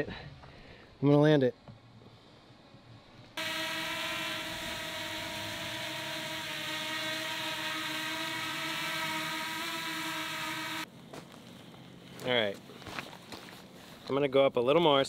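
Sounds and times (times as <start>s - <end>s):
drone propellers buzzing: 3.4s - 10.9s.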